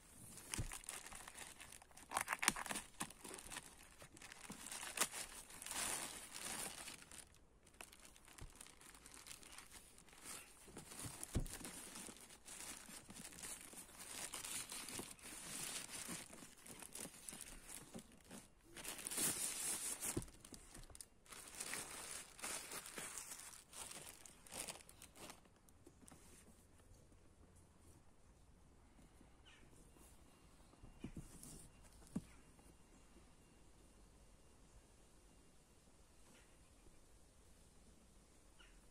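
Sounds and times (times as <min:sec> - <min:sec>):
plastic bag crinkling and tearing: 0:00.2 - 0:25.7.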